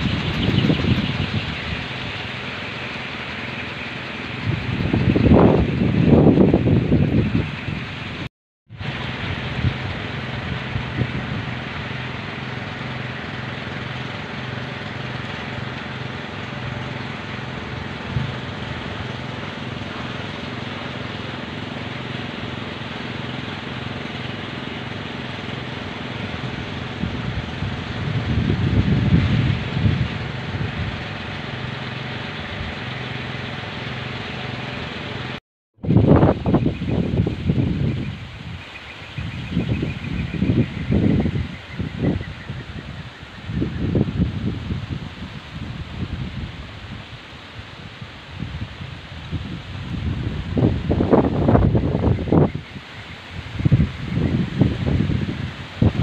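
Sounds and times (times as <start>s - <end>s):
wind: 0.0s - 56.0s
wind propellers humming: 0.0s - 56.0s.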